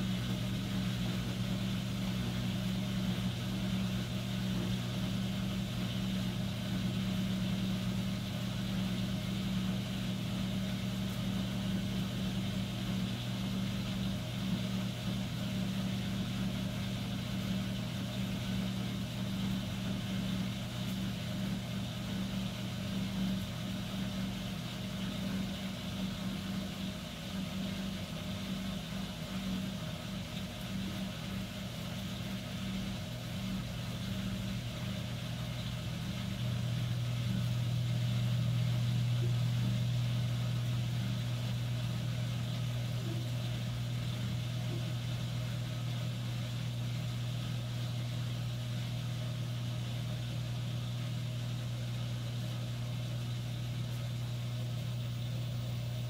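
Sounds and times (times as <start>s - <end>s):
washing machine motor hum: 0.0s - 56.0s.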